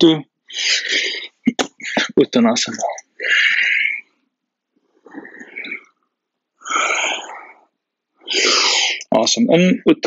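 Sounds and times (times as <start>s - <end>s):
person breathing deeply: 0.5s - 1.4s, 3.2s - 4.2s, 4.9s - 6.0s, 6.6s - 9.0s.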